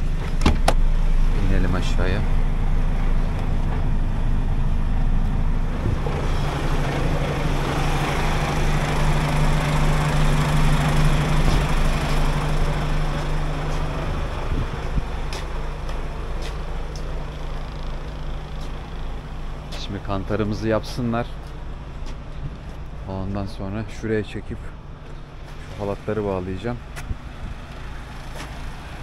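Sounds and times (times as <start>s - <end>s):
diesel engine idling: 0.0s - 29.0s
broad rushing noise: 1.2s - 16.8s.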